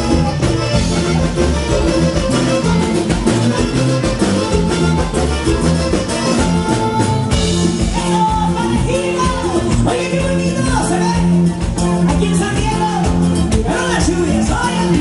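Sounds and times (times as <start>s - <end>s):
button accordion: 0.0s - 9.8s
drum kit: 0.0s - 15.0s
guitar: 0.0s - 15.0s
person singing: 7.8s - 11.4s.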